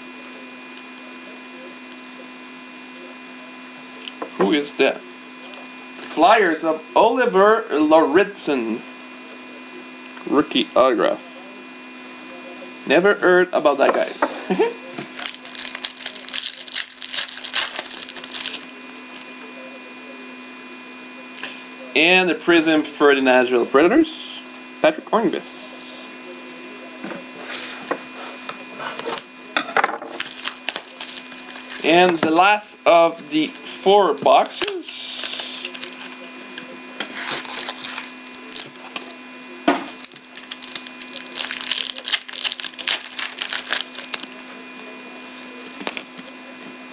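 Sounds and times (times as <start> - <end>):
wrapper crinkling and tearing: 15.0 - 19.3, 30.1 - 32.5, 34.6 - 36.2, 37.1 - 38.9, 39.9 - 44.4, 45.2 - 46.3.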